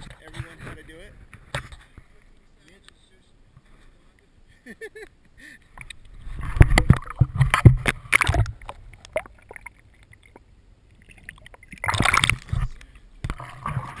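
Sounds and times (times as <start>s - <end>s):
water splashing and sloshing: 5.7s - 14.0s.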